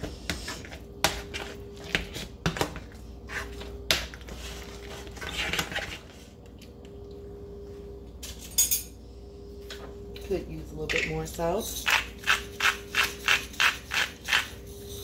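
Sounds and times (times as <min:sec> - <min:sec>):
utensil scraping a pot: 0:11.6 - 0:15.0.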